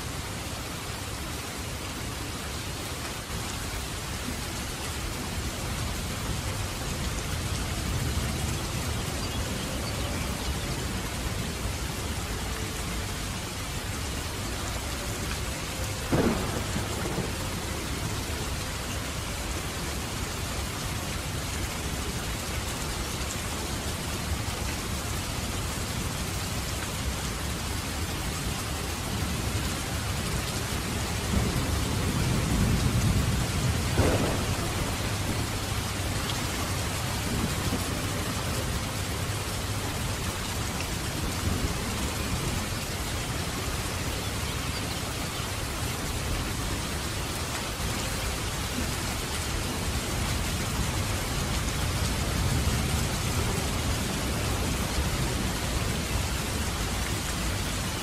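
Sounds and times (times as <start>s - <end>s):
steady rain falling: 0.0s - 58.0s
low rumble of thunder: 16.0s - 19.7s, 31.2s - 39.5s.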